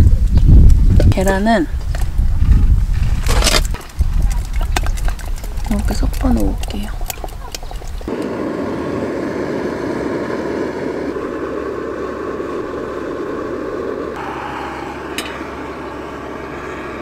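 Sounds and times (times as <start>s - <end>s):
gas burner rushing: 8.1s - 17.0s.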